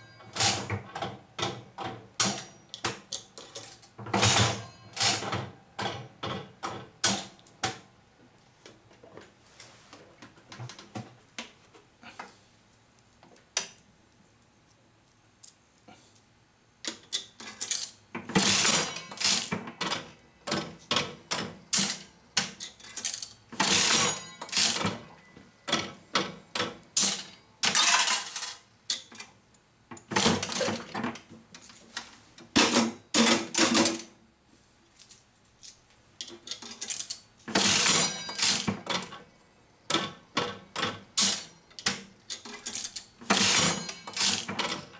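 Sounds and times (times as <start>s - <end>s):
slot machine reels clattering: 23.6s - 25.0s, 37.6s - 38.7s, 42.7s - 44.9s.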